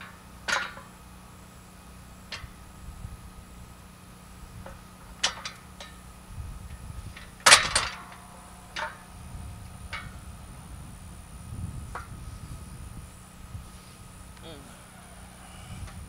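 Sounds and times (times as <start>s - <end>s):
metal brackets clanking: 0.0s - 1.2s, 2.1s - 2.7s, 4.4s - 10.4s.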